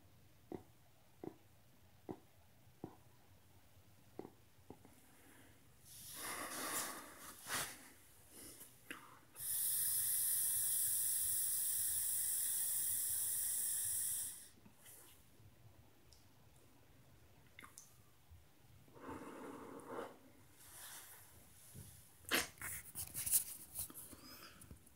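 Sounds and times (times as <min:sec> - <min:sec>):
hiss of air through vape: 0:09.4 - 0:14.6.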